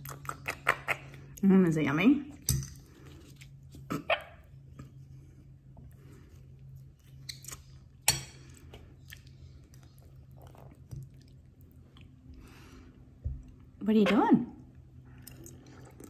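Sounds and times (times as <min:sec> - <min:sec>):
person chewing food: 0:00.0 - 0:01.4, 0:04.5 - 0:13.8, 0:15.0 - 0:16.0
low steady hum: 0:00.0 - 0:16.0.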